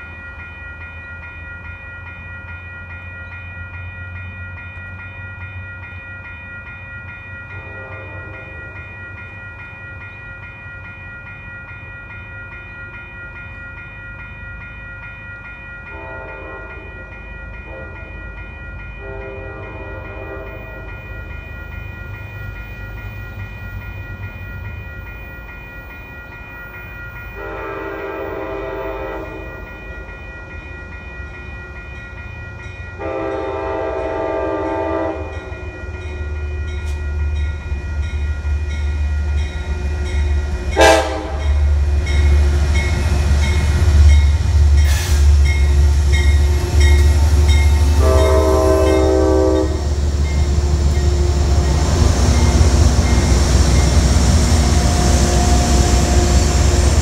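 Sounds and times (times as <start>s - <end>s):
locomotive horn blasts: 7.6s - 8.6s, 15.9s - 16.8s, 19.0s - 20.7s, 27.4s - 29.5s, 33.0s - 35.5s, 40.8s - 41.6s, 47.8s - 49.9s
diesel locomotive rumble: 36.0s - 57.0s.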